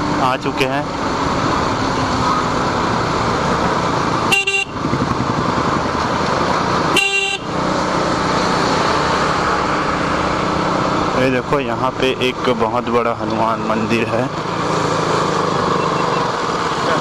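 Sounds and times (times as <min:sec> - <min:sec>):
motorcycle engine: 0:00.0 - 0:17.0
vehicle horn beeping: 0:04.3 - 0:04.8, 0:06.9 - 0:07.5.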